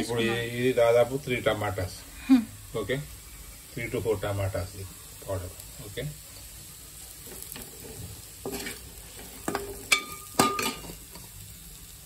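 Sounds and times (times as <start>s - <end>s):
frying sizzle: 0.0s - 12.0s
spoon scraping metal pot: 7.6s - 10.9s
spoon clanking against pot: 9.4s - 10.9s.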